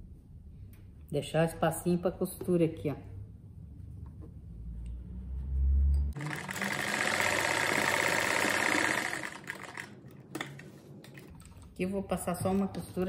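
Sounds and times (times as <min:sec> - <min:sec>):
electric sewing machine stitching: 0:06.2 - 0:10.7.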